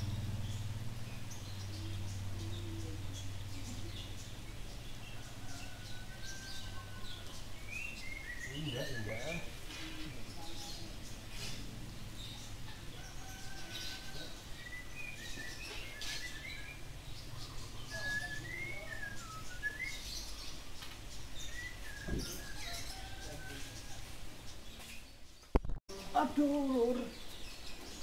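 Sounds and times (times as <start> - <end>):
low background rumble: 0.0 - 5.4
small birds chirping: 0.0 - 28.0.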